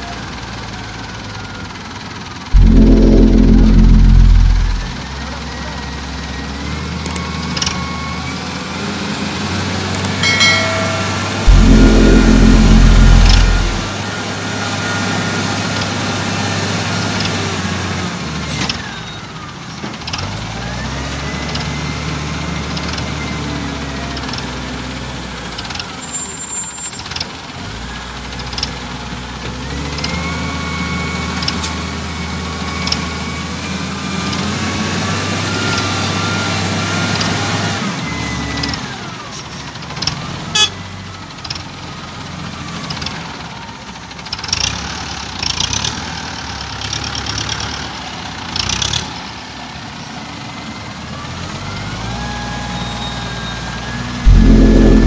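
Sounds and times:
engine whine: 2.6s - 5.0s, 10.2s - 14.0s, 54.3s - 55.0s.

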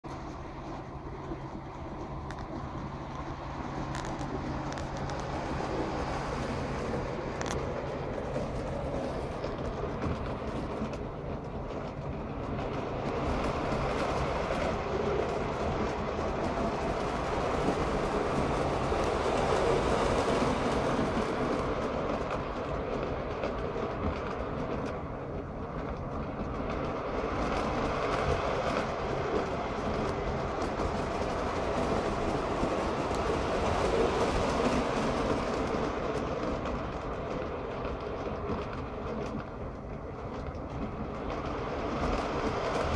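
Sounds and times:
model train running on rails: 0.0s - 42.9s.

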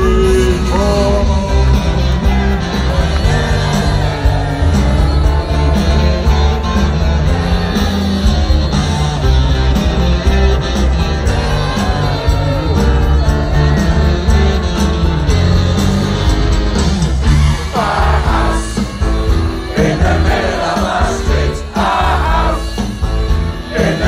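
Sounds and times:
person singing: 0.0s - 9.2s
guitar: 0.0s - 24.0s
heavy bass: 0.0s - 24.0s
live rock band: 0.0s - 24.0s.

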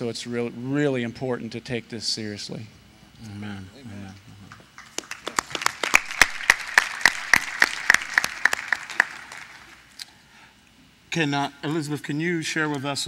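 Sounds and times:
audience applauding: 4.5s - 9.8s.

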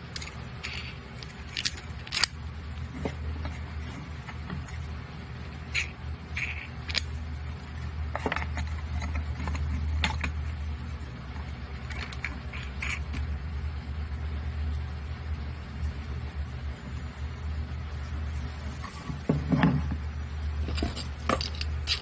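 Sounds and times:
metal parts clicking and scraping: 0.0s - 4.8s, 5.7s - 7.2s, 8.1s - 10.6s, 11.3s - 13.3s, 20.6s - 22.0s
steady low hum: 0.0s - 22.0s.

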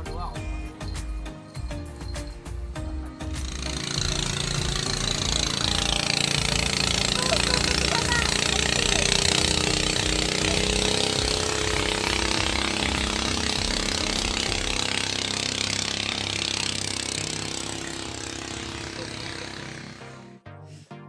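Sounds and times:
speedboat engine buzzing: 2.2s - 20.4s.

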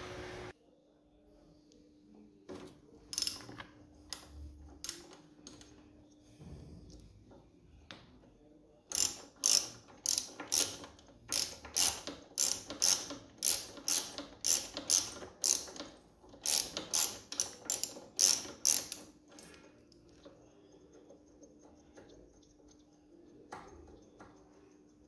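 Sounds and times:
ratchet wrench clicking: 3.1s - 3.5s, 8.9s - 19.5s.

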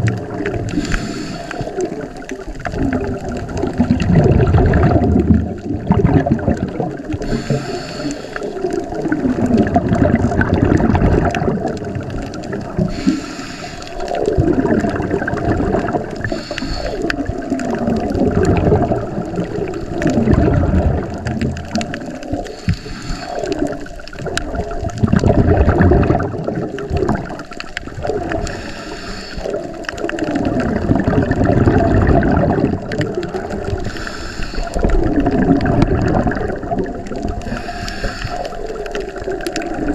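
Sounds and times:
gurgling exhaled bubbles: 0.0s - 39.9s
regulator inhale hiss: 0.7s - 1.9s, 7.2s - 8.6s, 12.9s - 14.2s, 16.2s - 17.3s, 22.4s - 23.8s, 28.4s - 29.8s, 33.7s - 34.9s, 37.4s - 38.8s.

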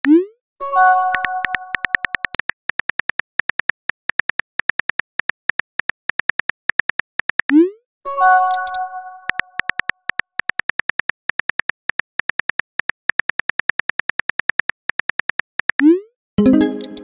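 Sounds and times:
keyboard tap clicks: 1.1s - 7.5s, 8.5s - 15.9s, 16.5s - 17.0s.

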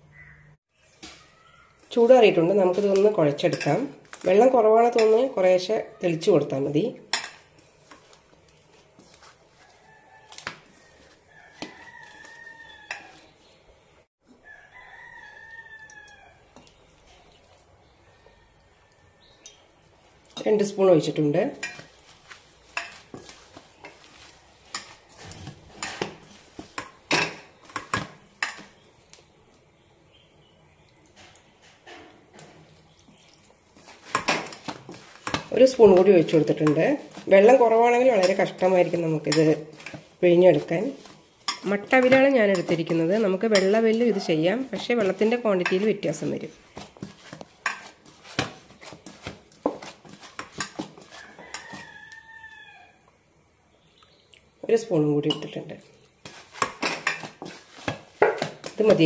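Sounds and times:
hand kneading dough in steel bowl: 1.2s - 13.6s, 19.2s - 29.2s, 32.4s - 52.2s, 54.7s - 59.0s.

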